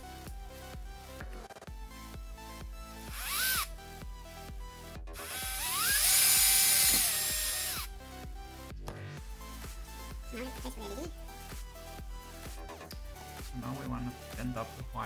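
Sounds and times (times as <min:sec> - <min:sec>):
cordless drill boring into plastic: 0:03.1 - 0:03.7, 0:05.2 - 0:07.9.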